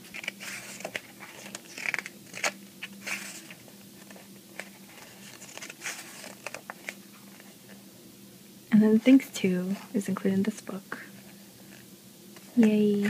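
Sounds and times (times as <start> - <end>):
book pages turning: 0.0 - 7.8.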